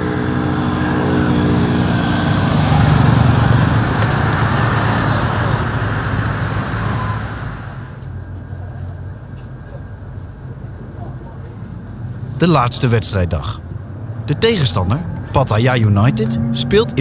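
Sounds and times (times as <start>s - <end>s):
vehicle passing by: 0.0s - 8.0s, 13.4s - 17.0s
low engine hum: 0.0s - 17.0s.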